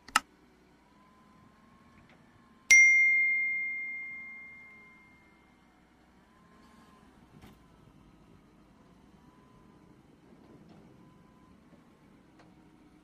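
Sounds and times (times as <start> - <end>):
bell ding: 2.7 - 5.2.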